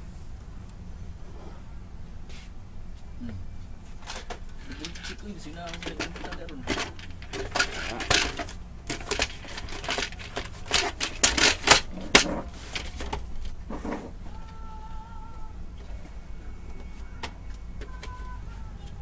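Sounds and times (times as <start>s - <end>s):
plastic parts clicking and rattling: 4.0s - 13.6s.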